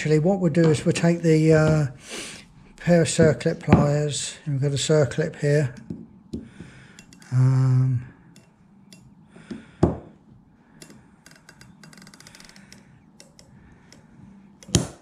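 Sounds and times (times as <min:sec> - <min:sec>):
pliers clicking on metal: 0:07.0 - 0:07.3, 0:08.3 - 0:09.1, 0:10.8 - 0:15.0.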